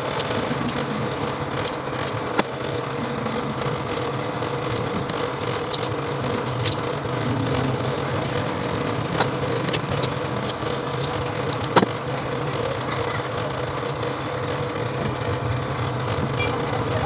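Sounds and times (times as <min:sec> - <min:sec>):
sharp metallic clicks: 0:00.0 - 0:12.8
low mechanical hum: 0:00.0 - 0:17.0.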